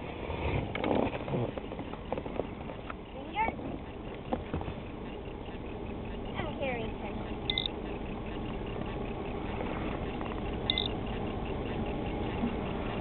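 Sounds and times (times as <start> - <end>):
boat engine rumble: 0.0 - 13.0
short high beeps: 7.4 - 7.8, 10.6 - 11.0.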